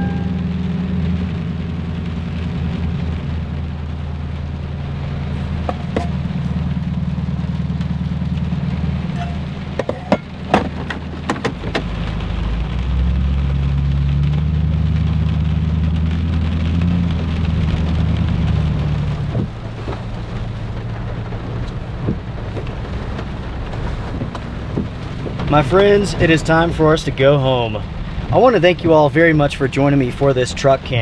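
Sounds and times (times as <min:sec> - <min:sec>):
deep low rumble: 0:00.0 - 0:31.0
heavy rain falling: 0:00.0 - 0:31.0
sharp knocks: 0:05.6 - 0:06.2, 0:09.2 - 0:11.9.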